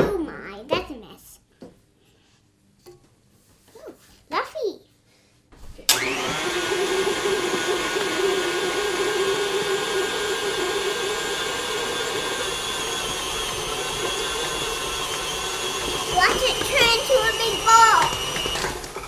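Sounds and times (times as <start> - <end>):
stand mixer motor running: 5.9 - 19.0.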